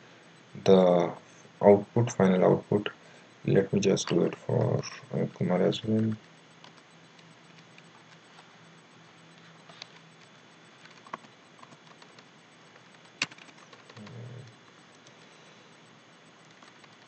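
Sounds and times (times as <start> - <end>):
keyboard key clicks: 10.8 - 14.6.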